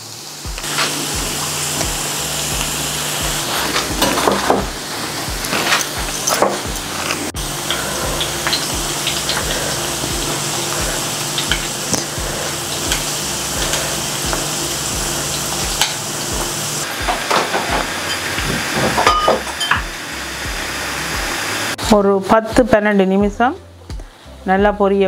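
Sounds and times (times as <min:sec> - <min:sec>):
fritters sizzling in hot oil: 0:00.0 - 0:21.8.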